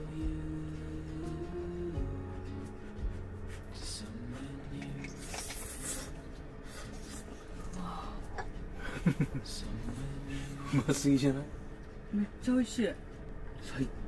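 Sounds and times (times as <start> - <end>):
noodles being slurped: 5.0 - 6.2.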